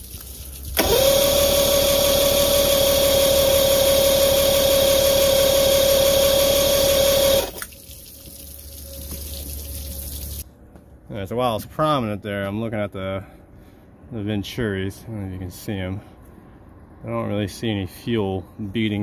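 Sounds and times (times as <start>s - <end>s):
hose water splashing: 0.0s - 1.4s, 6.9s - 10.4s
electric starter cranking whine: 0.8s - 7.7s.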